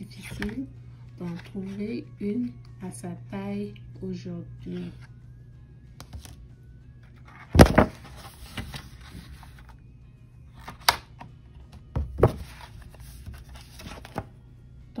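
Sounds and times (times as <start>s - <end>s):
book pages rustling: 7.1s - 9.8s, 12.1s - 14.3s
sharp knocks of page laid down: 7.5s - 8.7s, 11.9s - 12.5s
book thump: 7.5s - 9.3s, 11.9s - 12.7s.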